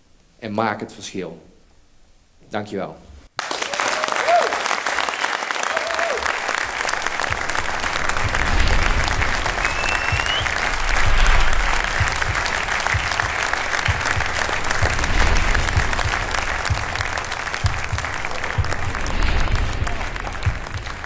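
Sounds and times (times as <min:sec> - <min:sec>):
audience applauding: 0:03.4 - 0:21.0
rising whistle: 0:08.7 - 0:13.5.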